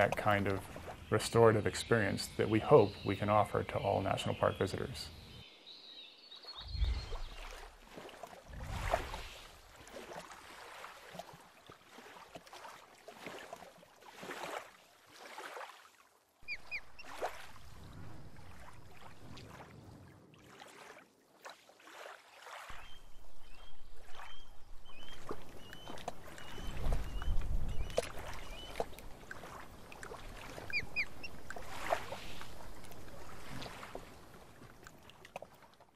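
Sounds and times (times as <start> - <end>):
waterfowl calling: 16.4 - 17.5, 23.6 - 33.5.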